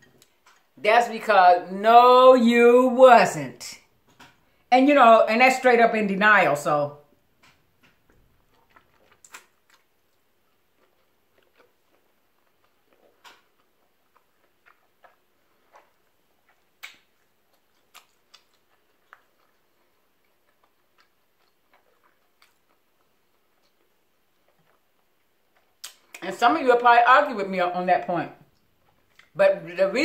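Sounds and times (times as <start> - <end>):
faint chewing: 0.0 - 0.8, 7.3 - 26.3, 28.4 - 29.4.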